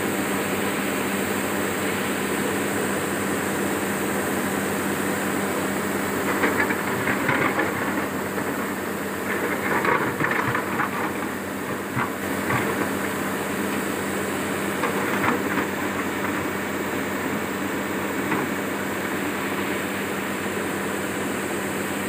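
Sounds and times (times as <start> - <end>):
excavator diesel engine running: 0.0 - 22.0
bucket scraping and clattering rock: 6.2 - 13.9, 14.6 - 17.1, 17.9 - 19.8.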